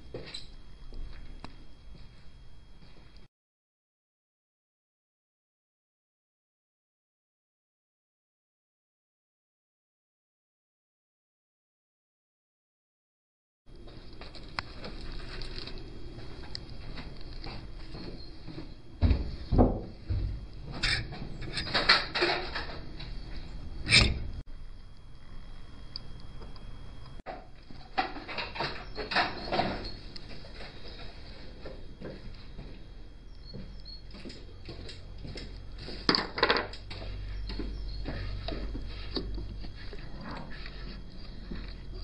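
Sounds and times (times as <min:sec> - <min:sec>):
low steady hum: 0:00.0 - 0:03.3, 0:13.7 - 0:42.0
light clicks and scrapes: 0:36.7 - 0:42.0.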